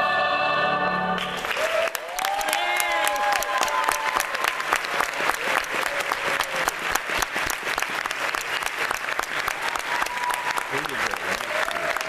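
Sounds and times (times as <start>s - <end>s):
audience applauding: 1.2s - 12.0s.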